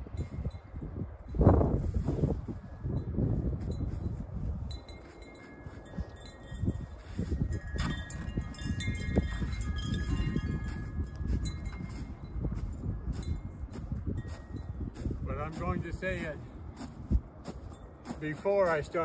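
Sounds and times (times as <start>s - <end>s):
wind on microphone: 0.0s - 18.7s
footsteps crunching in snow: 3.4s - 19.0s
wind chimes ringing: 4.6s - 14.9s.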